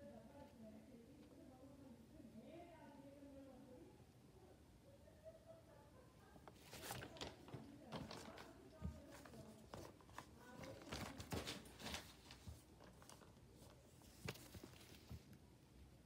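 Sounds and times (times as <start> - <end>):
phone handling rustles: 6.5 - 13.4.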